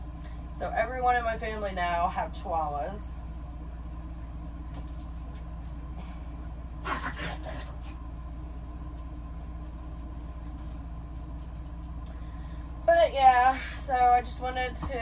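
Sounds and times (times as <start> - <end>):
low appliance hum: 0.0 - 15.0.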